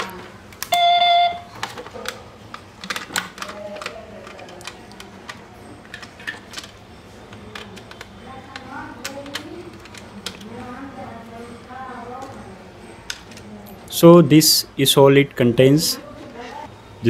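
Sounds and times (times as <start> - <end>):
short electronic beep: 0.7 - 1.5.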